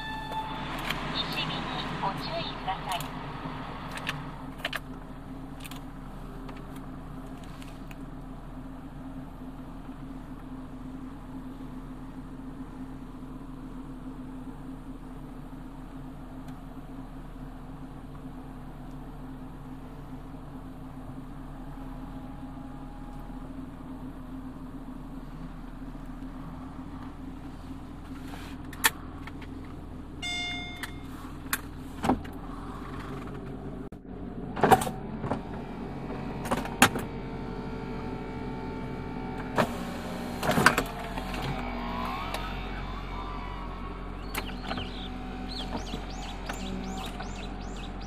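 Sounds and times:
short beep: 0.0s - 1.4s, 30.2s - 31.2s
car engine idling: 0.0s - 48.0s
electric-hydraulic whine: 36.1s - 47.9s.

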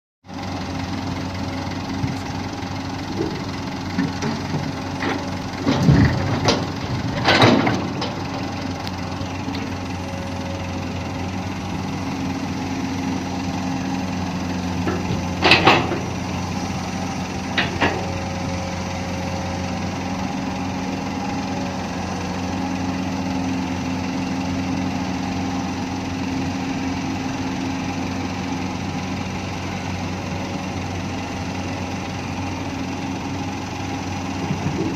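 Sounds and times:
excavator diesel engine running: 0.3s - 34.9s
clunks and rattles: 1.5s - 23.0s, 34.1s - 34.9s.

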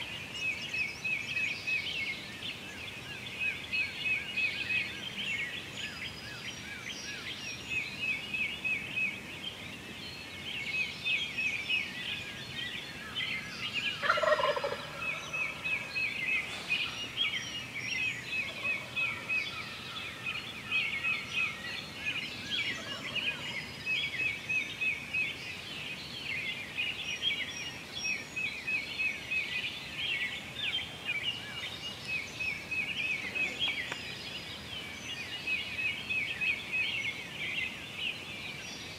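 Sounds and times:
songbirds chirping: 0.0s - 38.9s
turkey gobbling: 14.0s - 15.9s.

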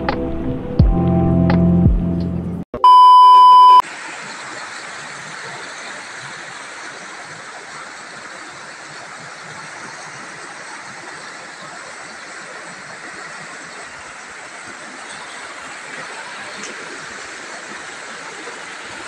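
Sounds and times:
test-tone beep: 2.8s - 3.8s.

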